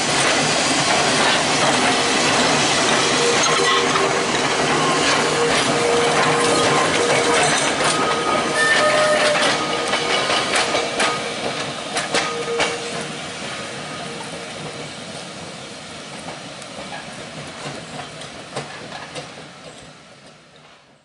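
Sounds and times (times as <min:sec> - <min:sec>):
tram wheels clattering over rail joints: 0:00.0 - 0:21.0
wheel squeals: 0:04.7 - 0:10.5.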